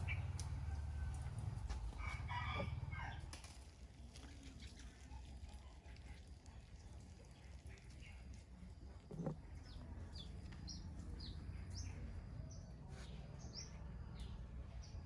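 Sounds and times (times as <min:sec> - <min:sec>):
rooster crowing: 0:00.5 - 0:03.3.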